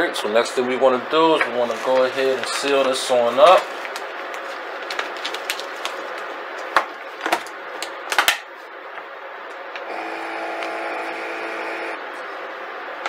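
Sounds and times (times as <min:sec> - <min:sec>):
vacuum pump humming: 0:09.5 - 0:13.0.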